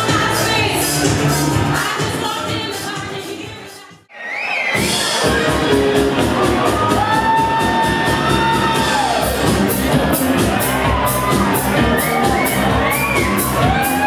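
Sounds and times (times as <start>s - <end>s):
club dance music: 0.0s - 14.0s
crowd shouting: 4.1s - 14.0s.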